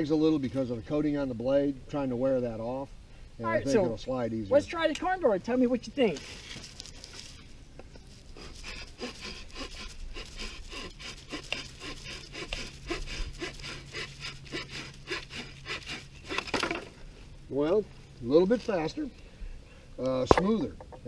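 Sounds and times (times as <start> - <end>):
saw cutting through branch: 8.3 - 16.8.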